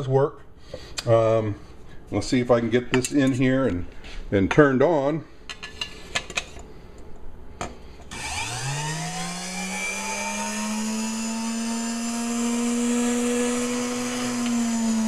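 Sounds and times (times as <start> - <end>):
mixer motor whine: 8.1 - 15.0.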